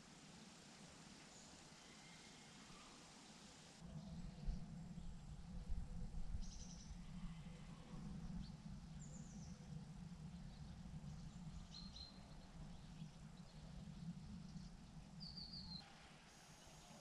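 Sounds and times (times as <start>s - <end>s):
faint bird chirps: 1.2s - 5.2s
low background rumble: 2.6s - 15.8s.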